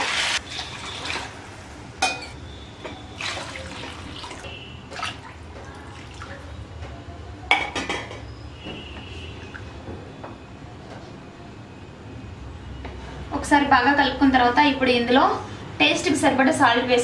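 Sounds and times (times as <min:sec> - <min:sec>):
water pouring and splashing into pan: 0:03.2 - 0:06.4.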